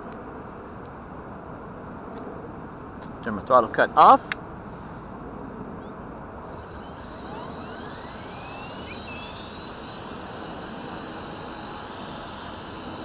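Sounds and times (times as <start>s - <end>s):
toy helicopter motor whine: 5.8s - 13.0s.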